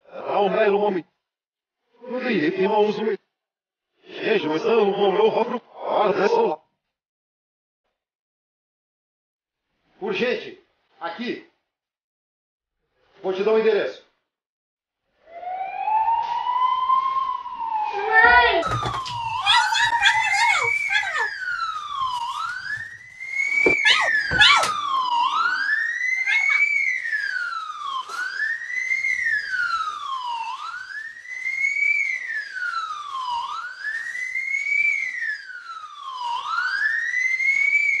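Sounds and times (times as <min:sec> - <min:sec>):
emergency siren wailing: 0:15.2 - 0:38.0.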